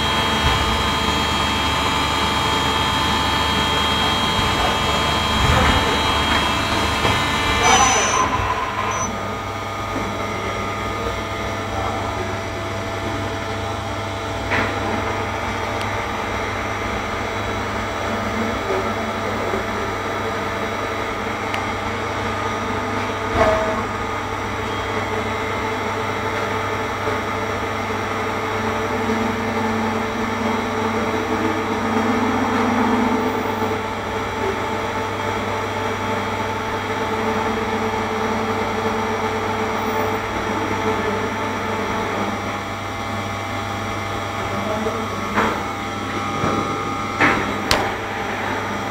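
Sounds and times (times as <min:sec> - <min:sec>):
machine humming: 0:00.0 - 0:17.8.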